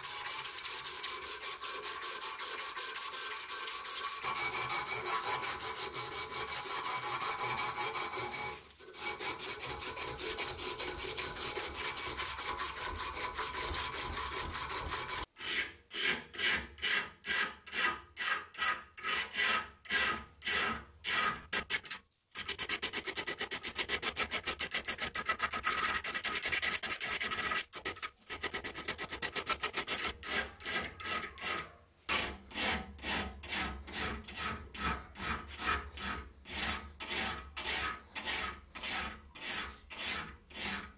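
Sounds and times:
abrasive rubbing on steel blade: 0.0s - 15.7s
hand file rasping strokes: 0.0s - 40.9s.

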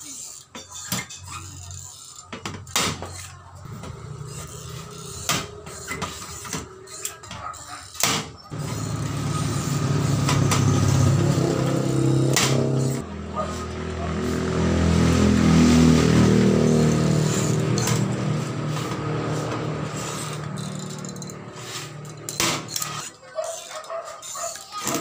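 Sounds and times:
vehicle engine running: 8.5s - 23.0s.

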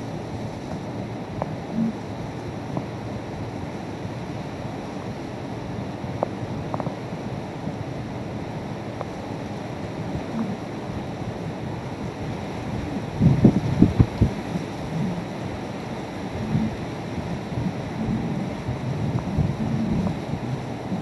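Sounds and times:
heavy rain: 0.0s - 21.0s
hurricane wind: 0.0s - 21.0s
wind gust buffeting microphone: 9.5s - 21.0s.

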